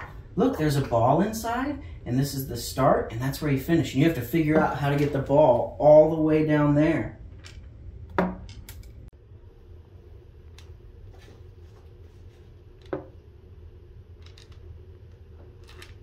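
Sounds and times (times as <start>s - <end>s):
low steady hum: 0.0s - 16.0s
ball clicking in wooden maze: 14.2s - 16.0s.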